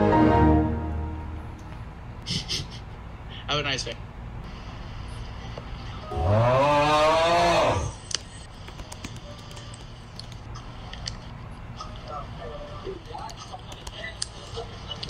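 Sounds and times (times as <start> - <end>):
keyboard clicks: 8.6 - 11.2.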